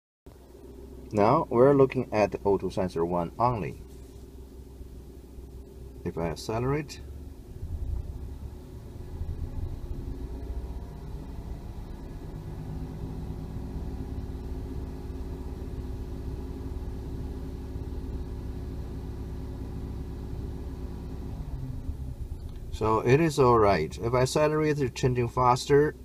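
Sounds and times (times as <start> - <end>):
car engine revving: 6.9 - 24.8.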